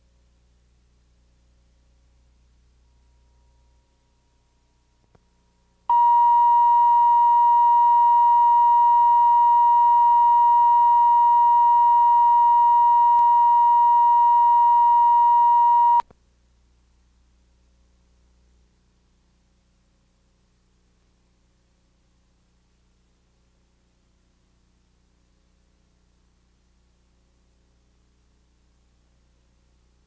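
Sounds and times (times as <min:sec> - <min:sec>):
faint tape hum: 0:00.0 - 0:30.0
steady reference tone: 0:05.9 - 0:16.0.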